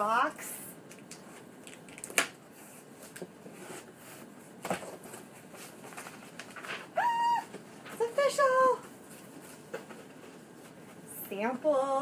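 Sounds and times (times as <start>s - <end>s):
cardboard rustling: 2.7s - 6.9s.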